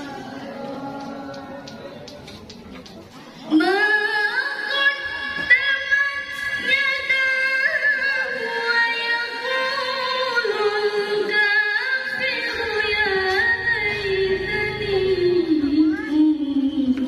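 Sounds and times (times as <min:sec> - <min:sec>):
woman chanting into a microphone: 0:03.4 - 0:17.0.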